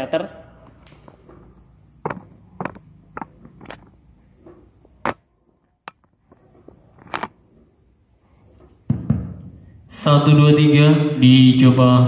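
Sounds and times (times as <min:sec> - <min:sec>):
microphone low thump: 0:08.9 - 0:09.6.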